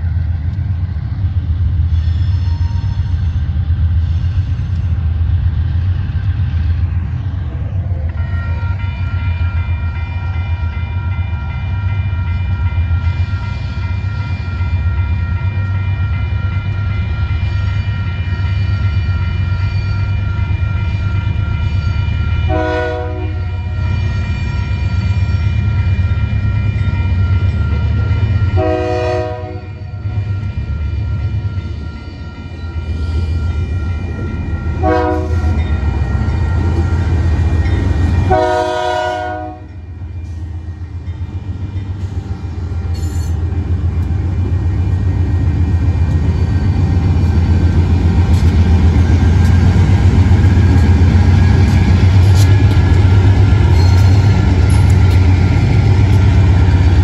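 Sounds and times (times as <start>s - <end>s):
diesel locomotive engine rumble: 0.0s - 57.0s
crossing bell ringing: 8.2s - 57.0s
locomotive horn blasts: 22.5s - 23.6s, 28.5s - 29.9s, 34.8s - 35.6s, 38.2s - 39.8s.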